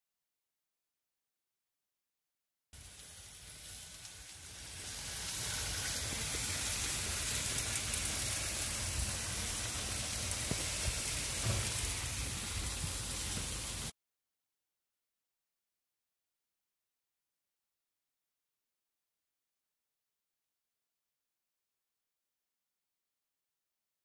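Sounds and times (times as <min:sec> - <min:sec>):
meat sizzling on a grill: 0:02.8 - 0:13.9.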